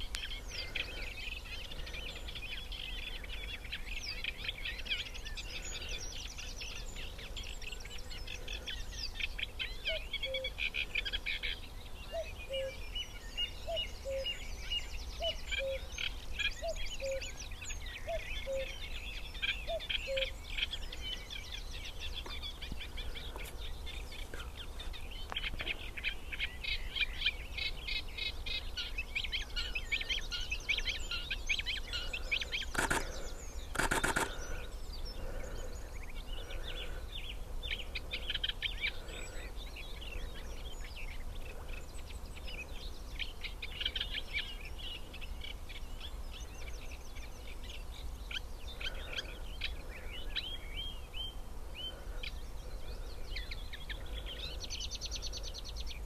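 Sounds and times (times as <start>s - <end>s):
reed warbler singing: 0.0s - 56.0s
cuckoo calling: 9.8s - 10.6s, 12.1s - 12.8s.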